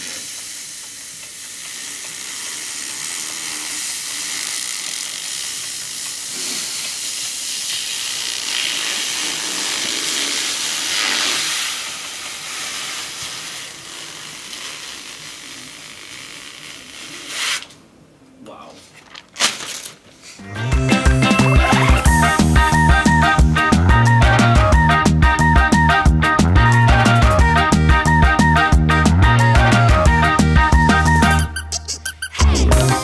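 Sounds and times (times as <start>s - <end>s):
plastic film peeling: 0.0s - 17.8s, 19.0s - 20.2s.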